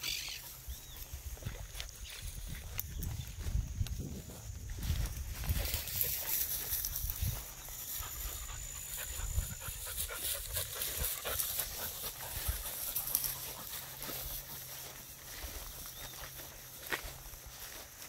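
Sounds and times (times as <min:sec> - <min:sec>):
dry grass rustling: 0:00.0 - 0:18.0
dog panting: 0:07.8 - 0:15.0.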